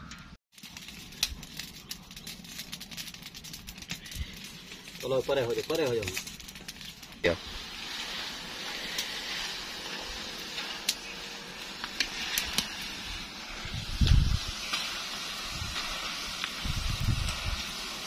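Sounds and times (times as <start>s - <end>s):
food deep-frying in hot oil: 0.5s - 18.0s.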